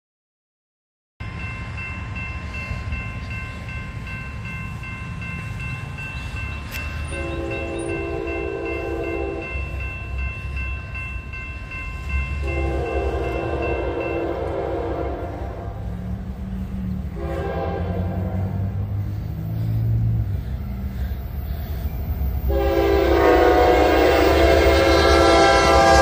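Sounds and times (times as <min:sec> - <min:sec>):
railroad crossing bell ringing: 0:01.2 - 0:26.0
train horn blasts: 0:07.0 - 0:09.7, 0:12.4 - 0:16.0, 0:17.0 - 0:19.1, 0:22.4 - 0:26.0.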